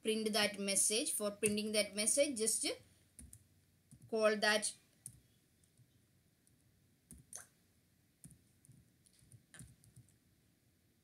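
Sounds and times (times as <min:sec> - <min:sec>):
faint keyboard keystrokes: 0:08.2 - 0:10.2.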